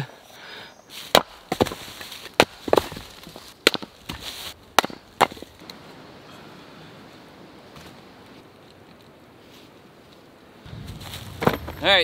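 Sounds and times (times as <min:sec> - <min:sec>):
axe splitting firewood: 0:01.1 - 0:05.5.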